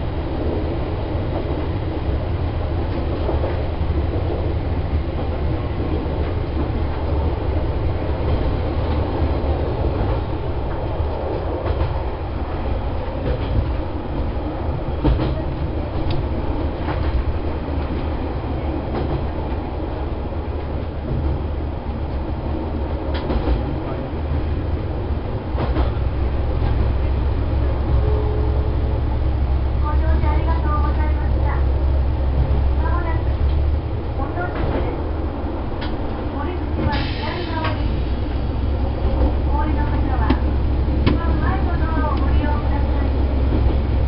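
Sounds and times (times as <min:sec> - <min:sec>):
railcar engine and wheel rumble: 0:00.0 - 0:44.0.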